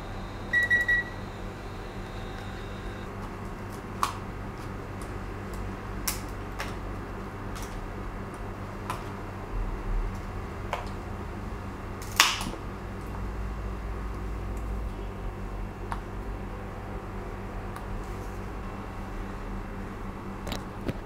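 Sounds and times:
low hum: 0.0 - 3.2.

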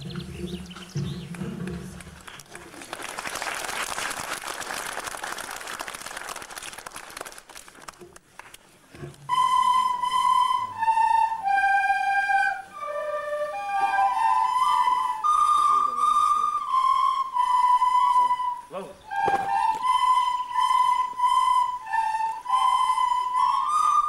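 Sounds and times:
crowd applauding: 1.3 - 8.6
recorders playing a melody: 9.3 - 24.0.

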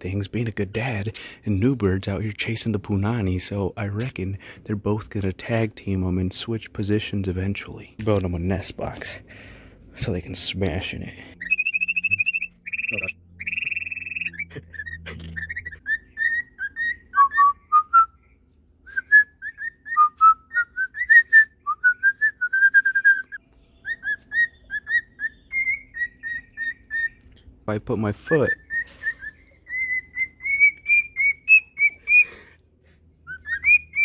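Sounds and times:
cockatiels whistling: 11.4 - 18.2, 18.9 - 27.2, 28.3 - 32.3, 33.2 - 34.0.

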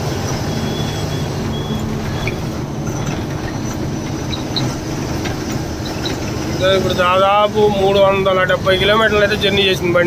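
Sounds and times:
truck engine and road noise: 0.0 - 10.0.

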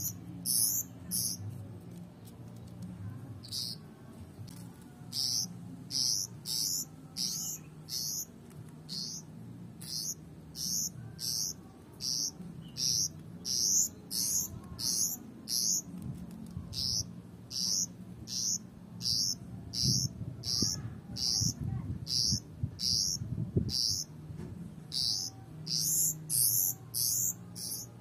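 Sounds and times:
bird high-pitched upward calls: 0.0 - 1.4, 5.1 - 8.3, 8.9 - 15.9, 16.7 - 24.1, 24.9 - 28.0.

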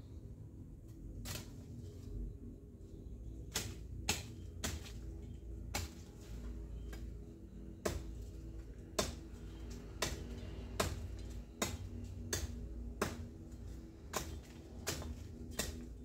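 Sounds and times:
low steady rumble: 0.0 - 16.0
twigs snapping: 1.2 - 1.7, 3.5 - 5.0.

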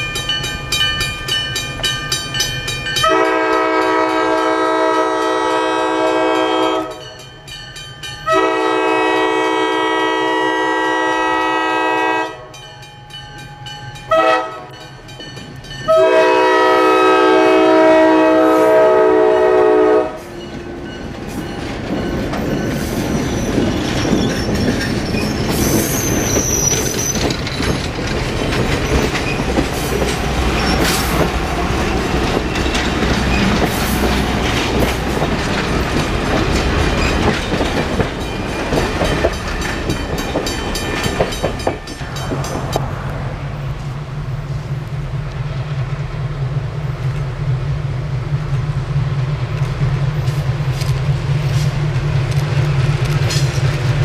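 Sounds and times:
train rumbling past: 0.0 - 54.0
locomotive air horn blasts: 3.0 - 7.0, 8.3 - 12.6, 14.1 - 14.7, 15.9 - 20.4
wheels clicking over rail joints: 20.5 - 42.9, 49.5 - 54.0.

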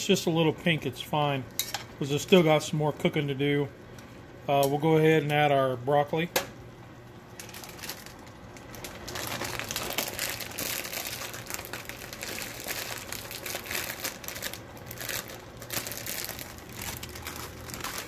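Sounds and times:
plastic bag crinkling: 7.4 - 18.0.

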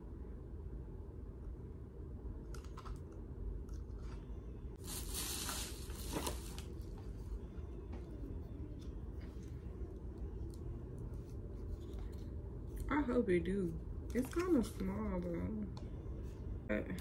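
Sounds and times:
packaging rustling tear: 4.8 - 6.8.

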